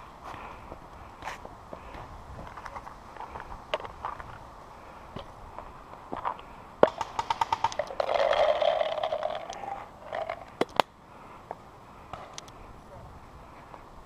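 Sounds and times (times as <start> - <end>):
paintball marker firing: 6.8 - 8.0
sharp cracks: 6.8 - 10.9.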